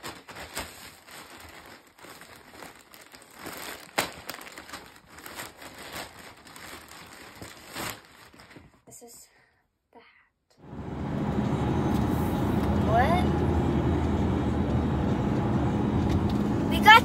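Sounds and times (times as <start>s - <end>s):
plastic mailer bag crinkling: 0.0s - 8.8s.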